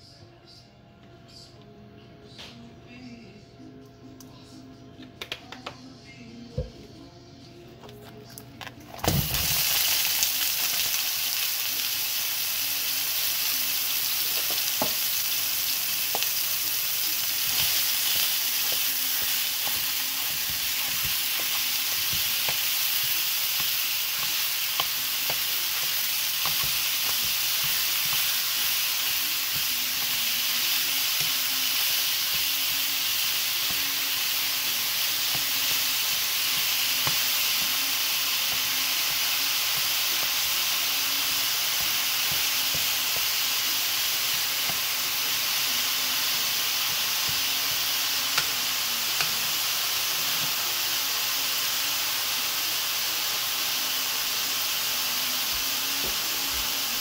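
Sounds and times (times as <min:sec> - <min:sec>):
meat sizzling in a frying pan: 0:09.0 - 0:57.0.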